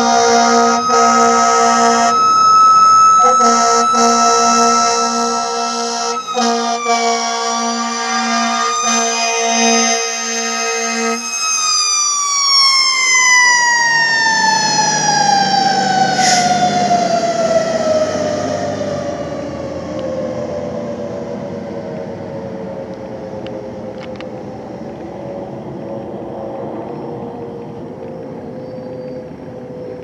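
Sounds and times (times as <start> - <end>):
air horn blasts: 0.0 - 2.3, 3.1 - 11.4, 16.2 - 16.6
engine rumbling: 0.0 - 7.2, 12.9 - 30.0
siren wailing: 0.0 - 24.6.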